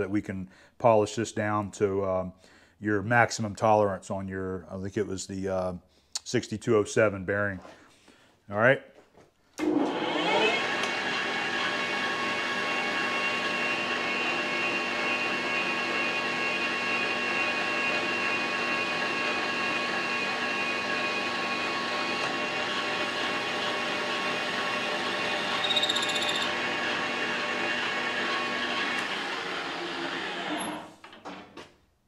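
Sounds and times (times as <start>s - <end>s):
metal lathe gear whine: 25.0s - 26.6s.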